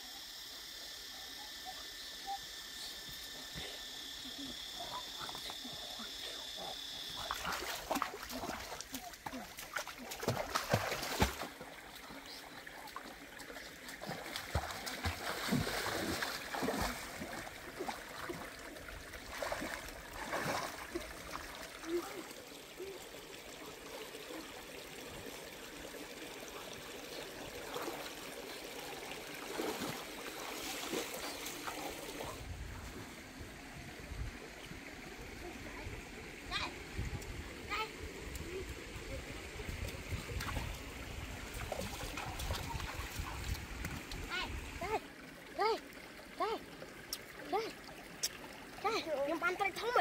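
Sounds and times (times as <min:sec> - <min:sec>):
water trickling: 0:03.9 - 0:32.4, 0:33.4 - 0:50.0
person splashing in water: 0:07.2 - 0:11.7, 0:13.9 - 0:18.4, 0:19.3 - 0:21.6.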